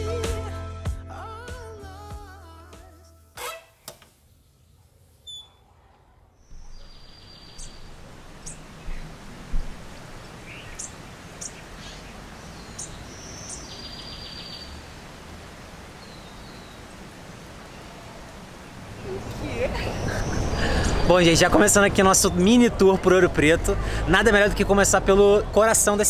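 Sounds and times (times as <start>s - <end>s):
high bird chirps: 6.4s - 9.1s, 10.2s - 14.8s
low thump: 6.5s - 6.9s, 8.9s - 9.9s
buzzy trilling calls: 6.5s - 9.2s, 10.2s - 14.7s
steady rushing noise: 6.5s - 13.1s.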